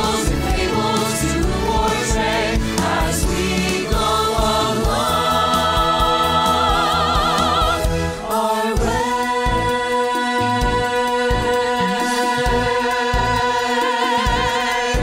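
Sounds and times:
backing track with steady beat: 0:00.0 - 0:15.0
group singing a show tune: 0:00.0 - 0:15.0.

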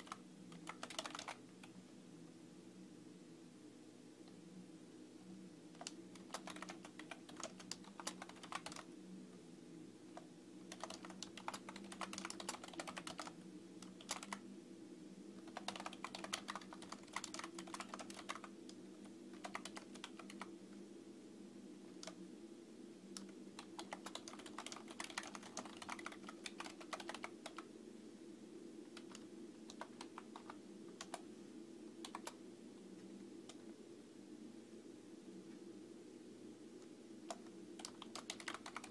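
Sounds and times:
typing on computer keyboard: 0:00.0 - 0:01.7, 0:05.7 - 0:08.9, 0:10.2 - 0:14.4, 0:15.4 - 0:20.5, 0:23.1 - 0:27.7, 0:29.0 - 0:31.2, 0:32.0 - 0:32.4, 0:37.3 - 0:38.9
steady low hum: 0:00.0 - 0:38.9.

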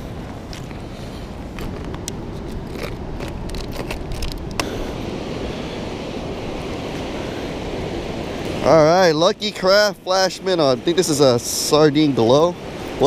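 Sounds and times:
footsteps on sand: 0:00.0 - 0:08.6
surf: 0:04.6 - 0:13.0.

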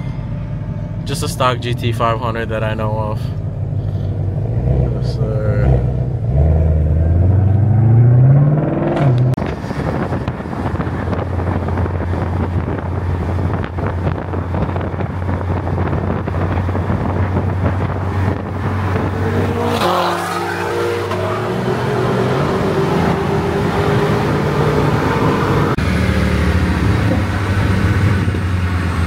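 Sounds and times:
car engines revving: 0:00.0 - 0:29.0
wind noise on microphone: 0:07.2 - 0:20.0, 0:26.8 - 0:29.0.

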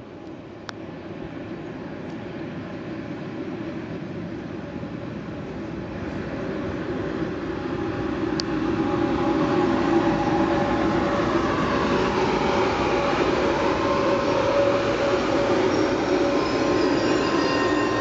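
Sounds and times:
electric locomotive whine: 0:00.0 - 0:18.0
train wheels rumbling: 0:01.0 - 0:18.0.

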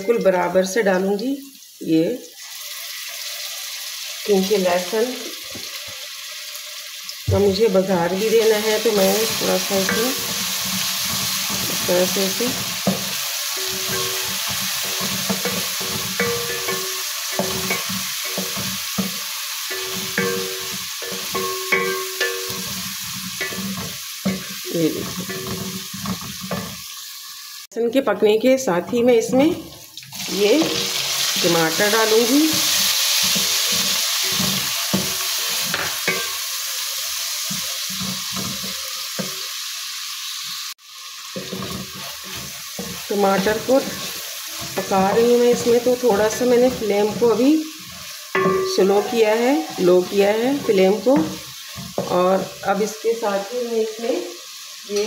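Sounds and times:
onions sizzling in pot: 0:00.0 - 0:55.0
wooden spoon scraping and knocking pot: 0:08.9 - 0:26.8, 0:31.7 - 0:36.4, 0:37.4 - 0:39.4, 0:41.4 - 0:52.6.

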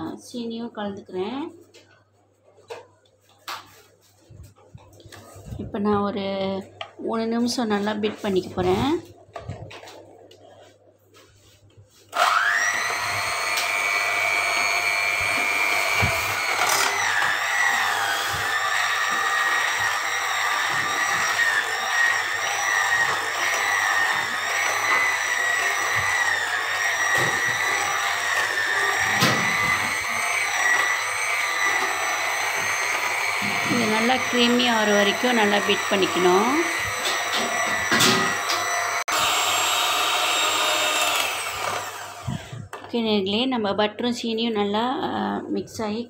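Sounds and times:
electric hand mixer whining: 0:12.1 - 0:42.8.

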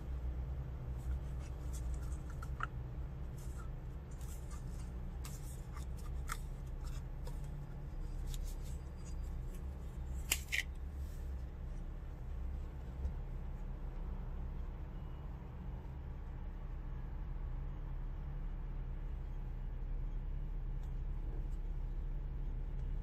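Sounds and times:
steady low hum: 0:00.0 - 0:23.0
plastic lid clicking and crinkling: 0:10.2 - 0:10.8.

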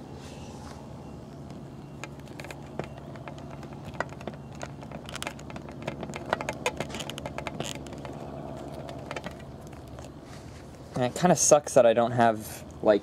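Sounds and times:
faint low hum: 0:00.0 - 0:13.0
plastic toy clicking and creaking: 0:02.0 - 0:10.1.

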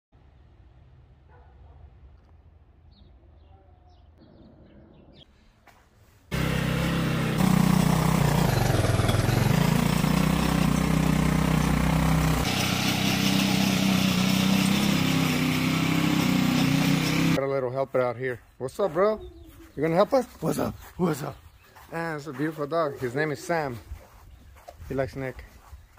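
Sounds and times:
garden tiller engine running: 0:06.3 - 0:17.4
tines churning dry dirt: 0:06.3 - 0:17.4.

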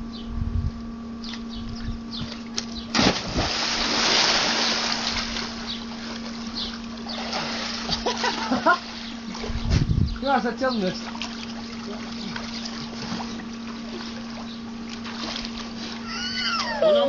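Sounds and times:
steady low hum: 0:00.0 - 0:17.0
person splashing into pool: 0:02.9 - 0:06.4, 0:07.2 - 0:09.5, 0:11.1 - 0:16.1
churning water: 0:02.9 - 0:09.6, 0:10.2 - 0:16.8.

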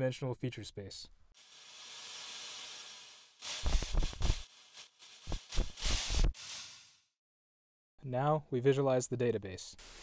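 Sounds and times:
synthesized cloth hiss: 0:01.4 - 0:07.1.

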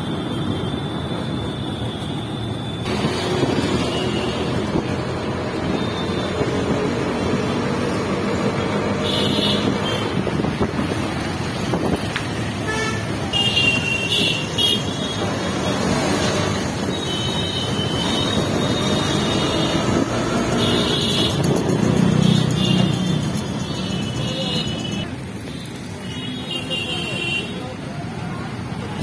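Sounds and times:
engine and road rumble: 0:00.0 - 0:29.0
vehicle horns honking: 0:09.0 - 0:10.2, 0:12.6 - 0:15.2, 0:16.9 - 0:21.6.

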